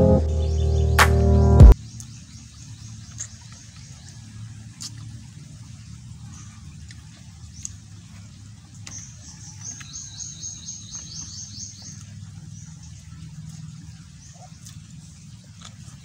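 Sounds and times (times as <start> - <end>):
steady low hum: 0.0 - 1.8.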